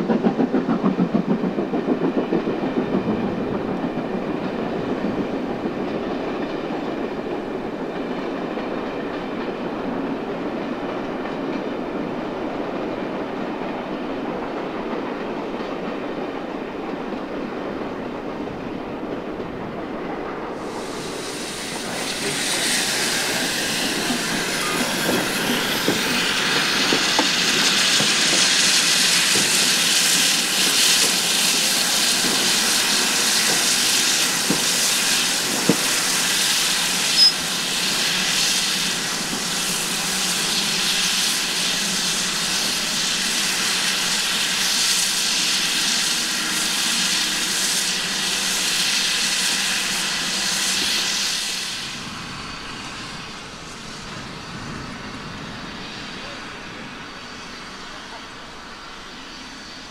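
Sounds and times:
steam locomotive hissing: 0.0s - 59.9s
train rumbling on rails: 0.0s - 59.9s.

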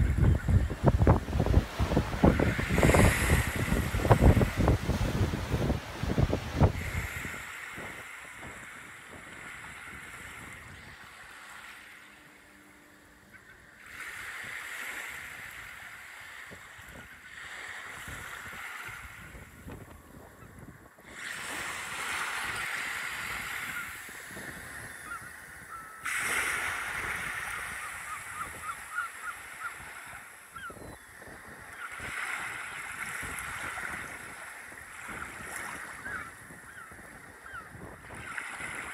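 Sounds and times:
wind on microphone: 0.0s - 11.4s, 13.4s - 38.9s
surf breaking on sandy beach: 0.0s - 12.1s, 21.1s - 28.6s.

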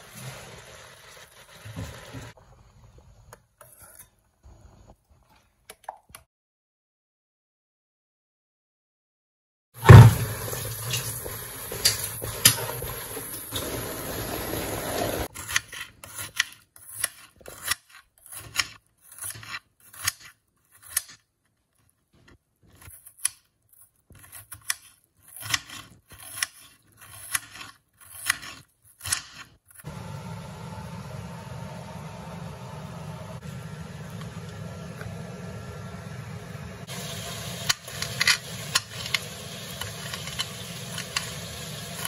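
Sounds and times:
knife slicing onion on board: 15.3s - 21.3s, 22.7s - 29.8s.

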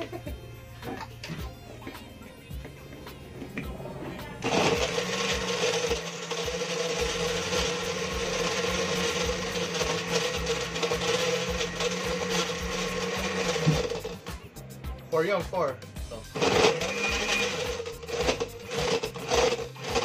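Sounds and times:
blender churning ice: 4.3s - 14.4s, 16.3s - 20.0s.

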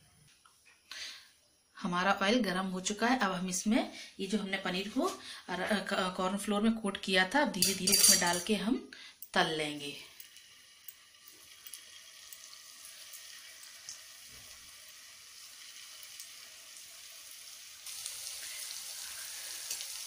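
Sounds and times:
frying oil sizzling and crackling: 9.6s - 20.0s.

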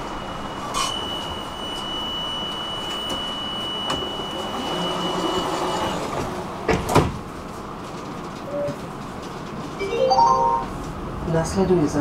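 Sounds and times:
tram interior hum: 0.0s - 12.0s.

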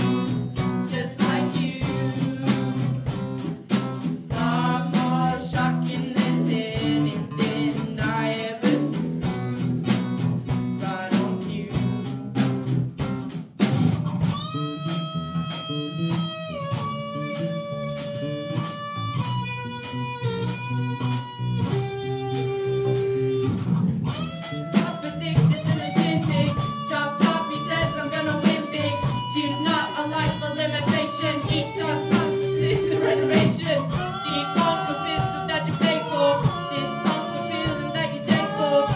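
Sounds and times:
person singing: 0.0s - 3.5s, 4.1s - 9.1s, 10.8s - 12.2s, 24.4s - 38.9s
bass guitar: 0.0s - 38.9s
electric guitar: 0.0s - 38.9s
steady drum beat: 0.0s - 38.9s.

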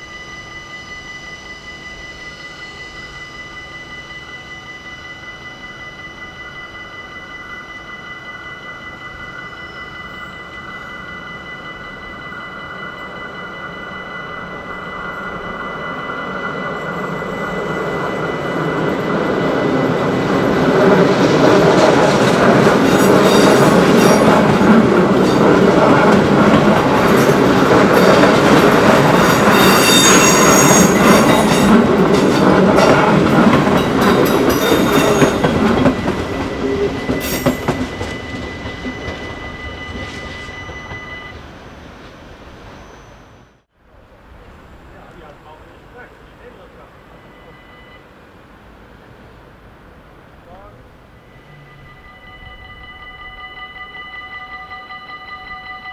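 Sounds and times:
crossing warning bell: 0.0s - 43.7s, 44.6s - 55.9s
train wheels rumbling on rails: 0.0s - 47.9s
wheel squeal: 29.2s - 31.8s, 36.4s - 43.6s.

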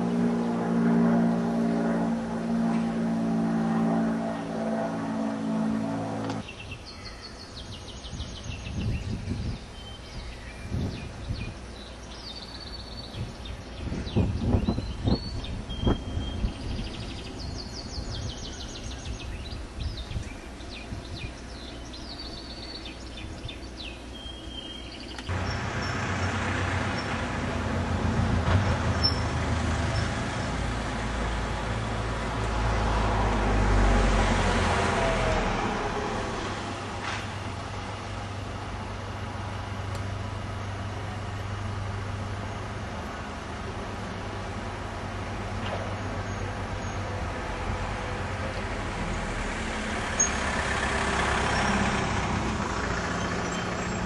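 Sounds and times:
vehicle passing: 0.0s - 6.4s, 25.0s - 45.6s, 46.2s - 54.0s
low engine hum: 0.0s - 6.7s, 7.6s - 54.0s
street traffic: 0.0s - 54.0s
birds chirping: 6.3s - 27.2s.

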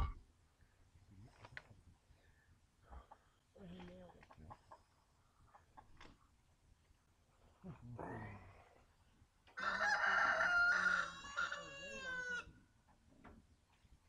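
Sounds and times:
rooster crowing: 9.6s - 12.5s.

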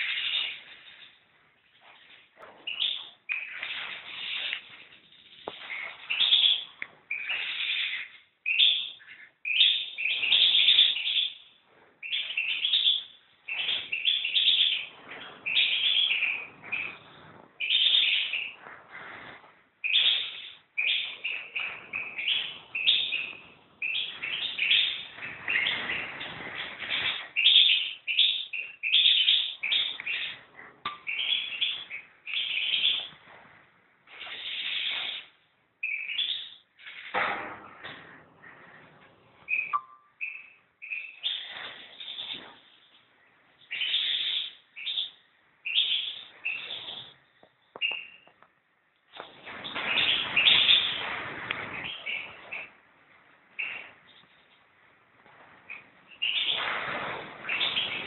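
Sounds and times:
goldfinch singing: 0.0s - 1.0s, 2.7s - 11.4s, 12.0s - 18.6s, 19.8s - 33.1s, 34.2s - 36.6s, 39.5s - 42.4s, 43.6s - 47.0s, 55.7s - 56.7s, 57.4s - 58.0s.

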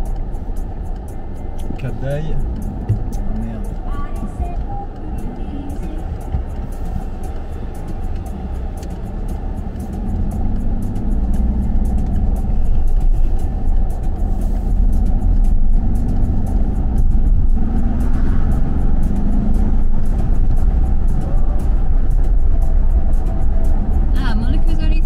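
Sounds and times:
car engine: 0.0s - 25.0s.

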